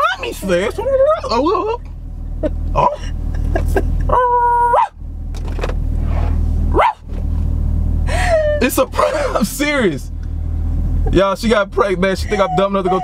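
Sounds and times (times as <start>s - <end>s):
car engine rumble inside cabin: 0.0s - 13.0s
person whimpering: 8.1s - 8.7s, 12.2s - 13.0s.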